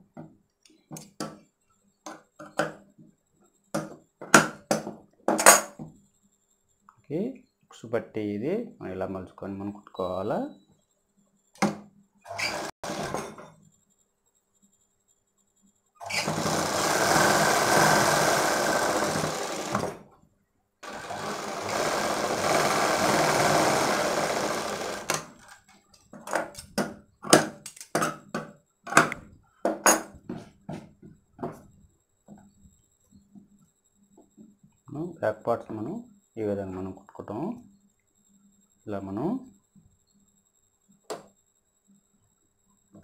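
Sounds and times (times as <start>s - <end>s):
sewing machine running: 12.3s - 13.3s, 16.0s - 20.0s, 20.8s - 25.6s.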